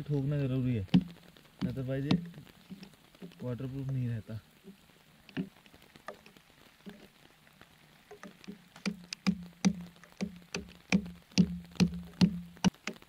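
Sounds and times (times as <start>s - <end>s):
stone hammering metal tent peg: 8.9s - 13.0s.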